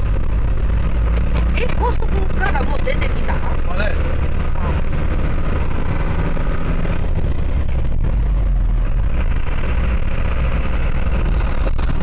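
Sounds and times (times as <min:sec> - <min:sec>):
vehicle engine and tyres rumbling: 0:00.0 - 0:12.0.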